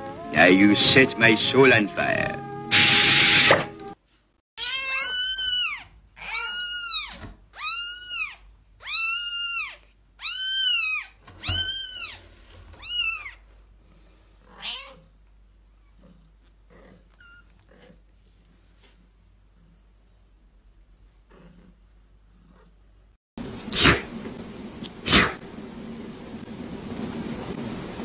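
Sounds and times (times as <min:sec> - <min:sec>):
kitten meowing: 0:04.6 - 0:12.2, 0:12.8 - 0:13.4, 0:14.5 - 0:15.1, 0:17.1 - 0:17.6.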